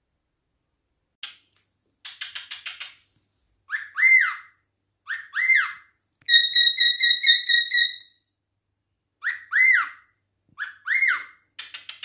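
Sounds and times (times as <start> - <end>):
cockatiel chirping and whistling: 3.7 - 8.1, 9.2 - 11.9.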